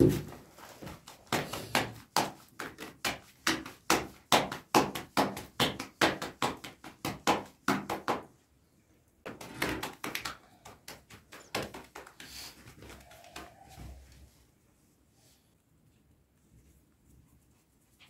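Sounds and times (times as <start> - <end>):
dough slapped between palms: 0.0 - 8.4, 9.2 - 13.6.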